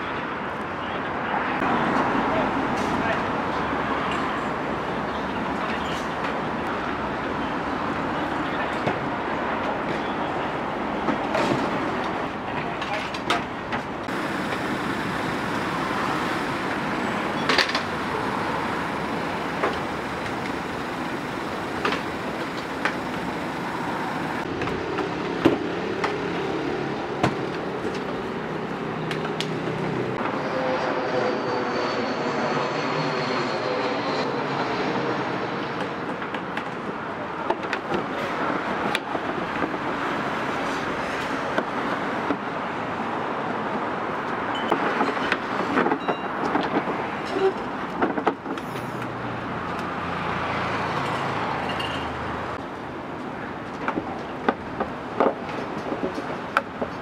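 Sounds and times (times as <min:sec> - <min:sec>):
steady rushing noise: 0:13.5 - 0:27.0.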